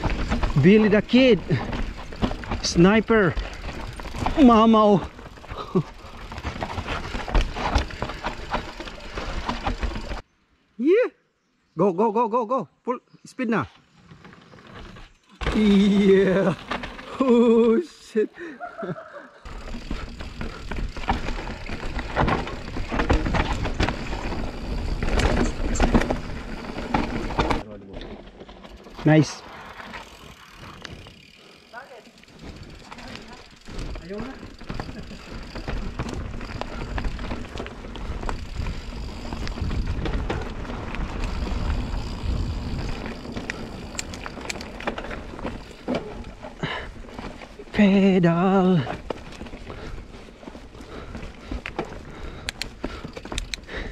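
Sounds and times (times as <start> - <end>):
bike knocking and rattling: 0.0 - 10.2, 14.2 - 17.7, 19.4 - 53.9
tyres rolling over dirt: 0.0 - 10.2, 13.9 - 18.0, 19.4 - 53.9
bike parts clattering: 19.5 - 28.6
tyre and wind rush: 33.5 - 47.8.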